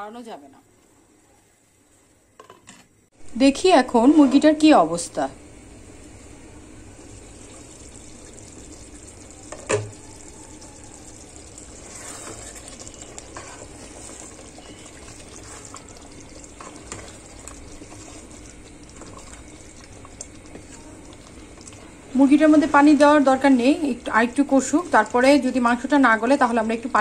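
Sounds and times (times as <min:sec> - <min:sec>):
gravy sizzling and bubbling: 0:03.1 - 0:27.0
wooden spatula scraping pot: 0:11.7 - 0:15.9.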